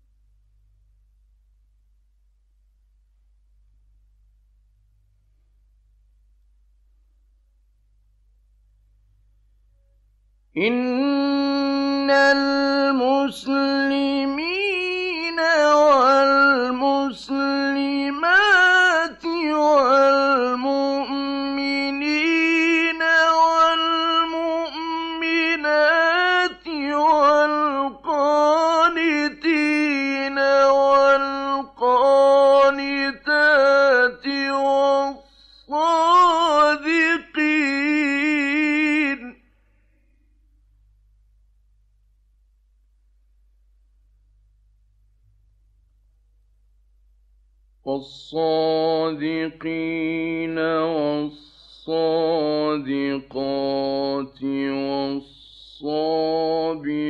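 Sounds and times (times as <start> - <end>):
man chanting melodically: 47.9 - 57.0.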